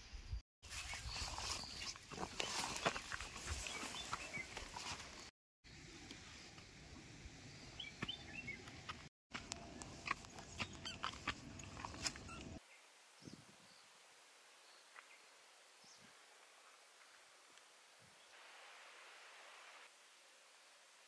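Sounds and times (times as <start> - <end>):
bird chirps: 7.6 - 8.7, 9.7 - 12.6.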